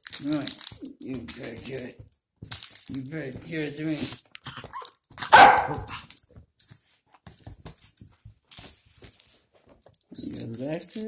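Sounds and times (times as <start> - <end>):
faint scuffling and clicks: 0.0 - 11.0
dog barking: 4.8 - 6.0.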